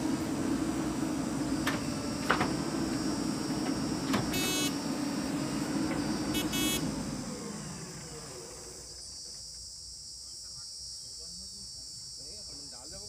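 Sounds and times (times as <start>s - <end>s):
diesel engine running: 0.0s - 9.0s
short horn-like beep: 4.3s - 4.8s, 6.4s - 6.8s.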